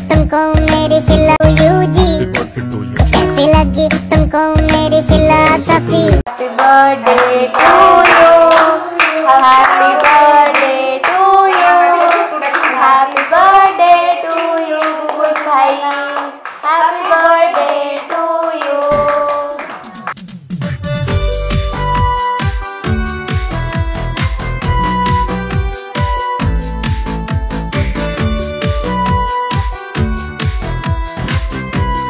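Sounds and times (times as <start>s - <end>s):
person singing: 0.0s - 20.2s
hands clapping: 6.5s - 13.4s, 14.2s - 20.2s.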